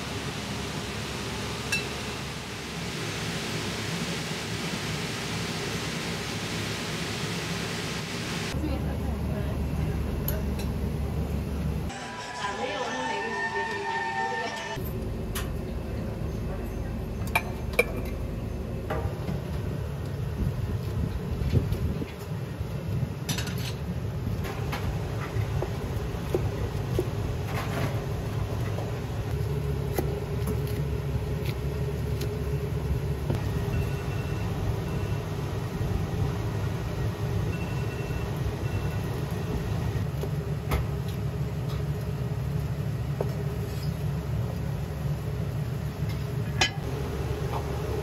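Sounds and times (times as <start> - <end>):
gas wok burners roaring: 0.0 - 48.0
utensils clanking on a wok: 46.5 - 46.9.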